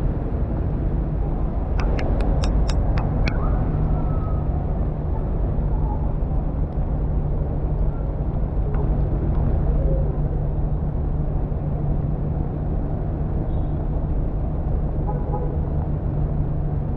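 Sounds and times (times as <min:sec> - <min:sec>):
low rumble of traffic: 0:00.0 - 0:16.9
sharp clicks: 0:01.7 - 0:03.4.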